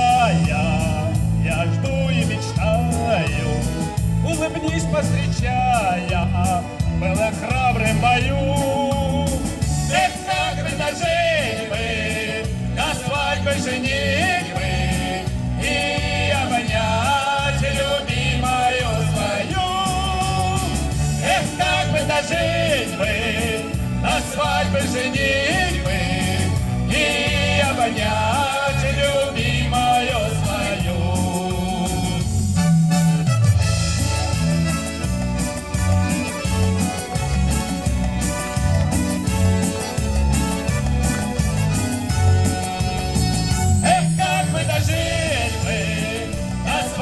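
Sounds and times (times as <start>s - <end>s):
backing track with steady beat: 0.0s - 47.0s
man and woman singing duet: 43.8s - 47.0s.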